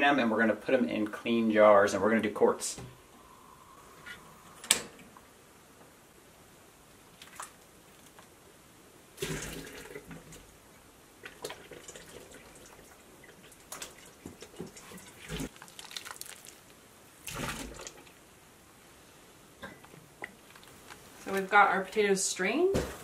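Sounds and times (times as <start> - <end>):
water splashing into a pot: 9.2 - 10.2, 11.2 - 18.2.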